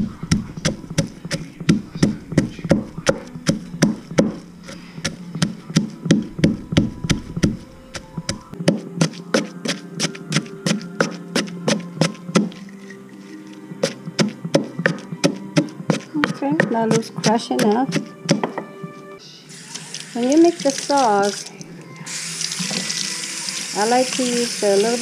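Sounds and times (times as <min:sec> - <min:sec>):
pestle pounding in clay mortar: 0:00.0 - 0:12.6, 0:13.8 - 0:18.8.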